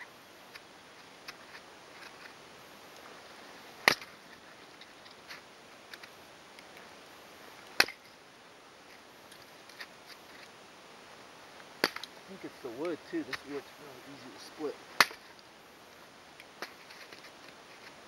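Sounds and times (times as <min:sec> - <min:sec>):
hatchet chopping wood: 0:03.8 - 0:04.1, 0:07.8 - 0:08.0, 0:11.8 - 0:12.1, 0:15.0 - 0:15.2.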